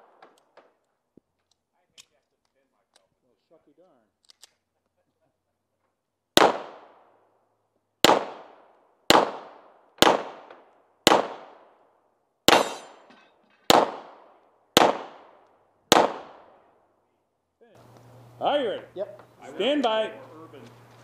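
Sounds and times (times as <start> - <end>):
pistol shots echoing: 6.4 - 7.1, 8.0 - 11.8, 12.5 - 13.1, 13.7 - 16.7.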